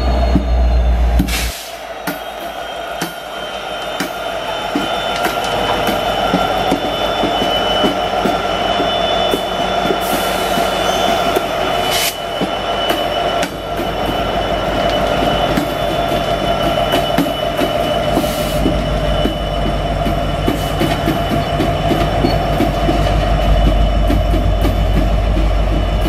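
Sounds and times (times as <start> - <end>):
diesel locomotive engine: 0.0 - 26.0
brief air hiss: 1.3 - 1.8.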